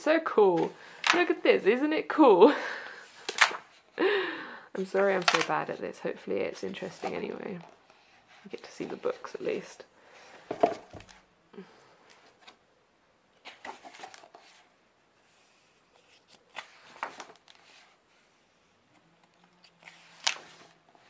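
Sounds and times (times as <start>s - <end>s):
book pages turning: 0.5s - 1.4s, 3.0s - 3.8s, 4.8s - 9.7s, 13.4s - 21.0s.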